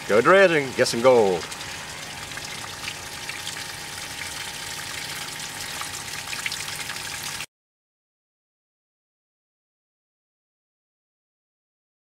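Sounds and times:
low steady hum: 0.0s - 7.5s.

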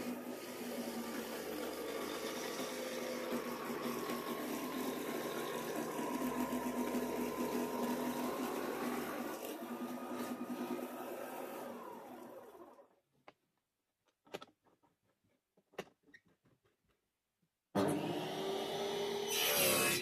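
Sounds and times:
jigsaw whining through plywood: 0.0s - 13.1s, 17.8s - 20.0s.

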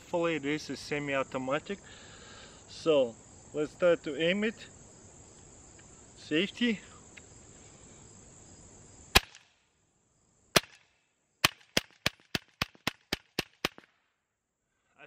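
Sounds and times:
crickets chirping: 0.0s - 15.0s
air pistol shots: 9.1s - 9.6s, 10.6s - 13.9s.

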